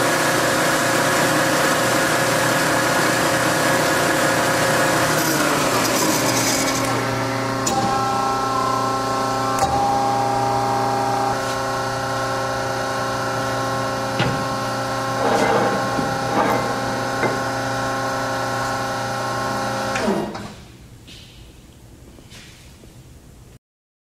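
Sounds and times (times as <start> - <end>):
band saw humming: 0.0 - 20.0.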